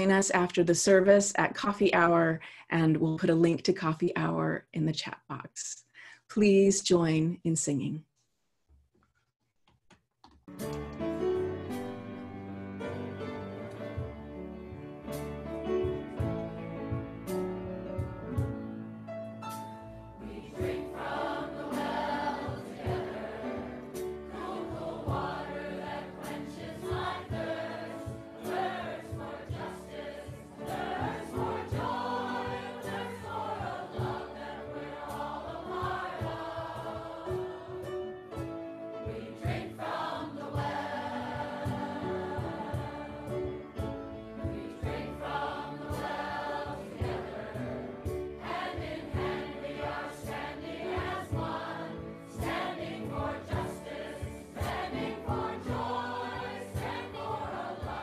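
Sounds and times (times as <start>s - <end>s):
instrumental accompaniment: 10.4s - 58.0s
choir singing a hymn: 20.2s - 38.4s, 39.0s - 58.0s.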